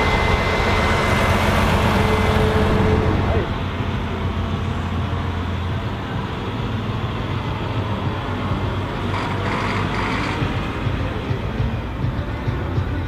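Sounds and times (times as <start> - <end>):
tractor diesel engine drone: 0.0 - 13.0.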